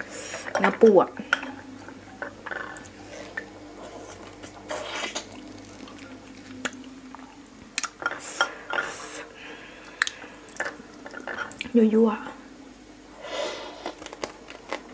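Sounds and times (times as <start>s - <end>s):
wet squishing: 2.7s - 8.0s
wet slurp: 3.9s - 6.9s.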